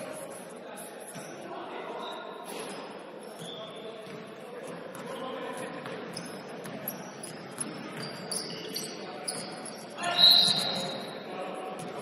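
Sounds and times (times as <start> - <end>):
sneakers squeaking: 0.0 - 12.0
basketball bouncing: 5.7 - 8.4
shrill whistle blast: 10.0 - 11.0.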